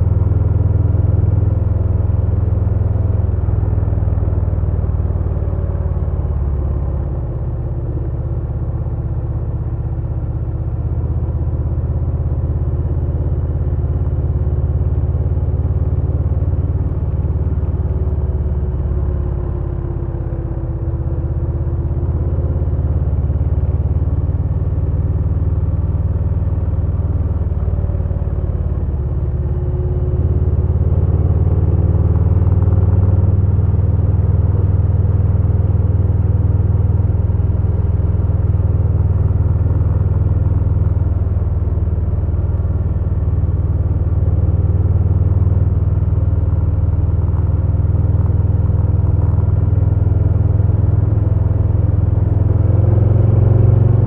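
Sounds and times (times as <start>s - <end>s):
motorcycle engine running: 0.0s - 54.0s.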